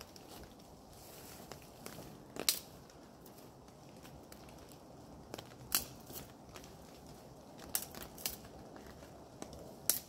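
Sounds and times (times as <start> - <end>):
twigs crackling: 0.0 - 10.0
sticks snapping: 2.3 - 3.0, 5.3 - 6.3, 7.6 - 8.5, 9.4 - 10.0.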